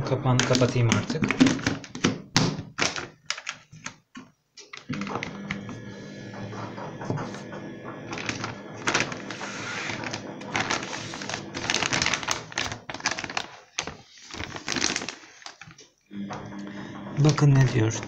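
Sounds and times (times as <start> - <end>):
plastic bag crinkling: 2.8 - 4.0, 8.1 - 16.0.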